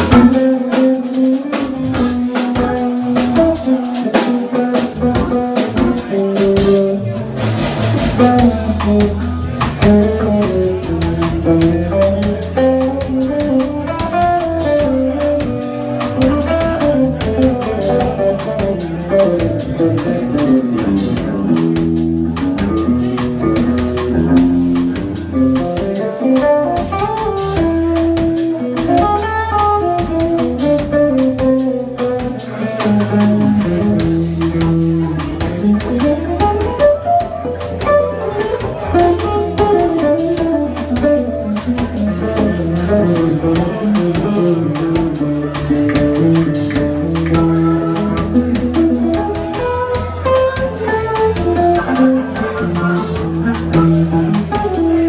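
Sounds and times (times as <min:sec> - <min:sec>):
bass line: 0:00.0 - 0:55.0
drum kit: 0:00.0 - 0:55.0
electric guitar: 0:00.0 - 0:55.0.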